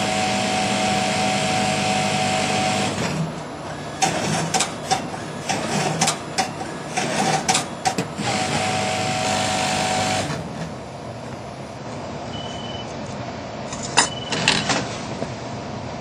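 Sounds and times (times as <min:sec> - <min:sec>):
industrial sewing machine stitching: 0:00.0 - 0:10.7.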